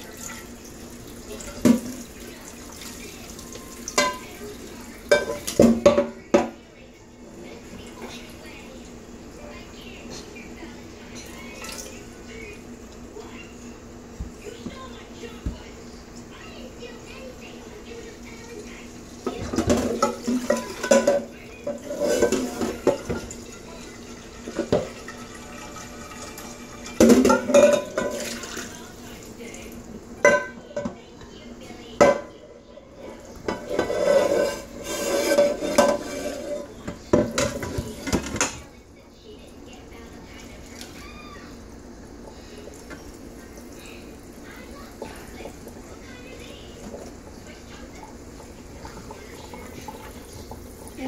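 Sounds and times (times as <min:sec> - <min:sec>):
metal pot clanking against sink: 0:01.4 - 0:02.1, 0:03.9 - 0:04.4, 0:05.1 - 0:06.6, 0:19.2 - 0:28.7, 0:30.2 - 0:31.0, 0:32.0 - 0:32.3, 0:33.4 - 0:38.6
tap running into a pot: 0:19.2 - 0:28.4.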